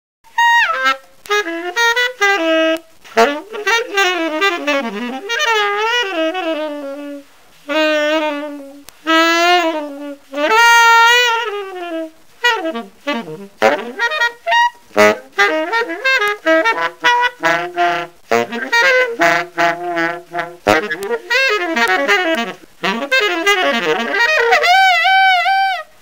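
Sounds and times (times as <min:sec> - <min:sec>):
solo wind instrument melody: 0:00.3 - 0:26.0.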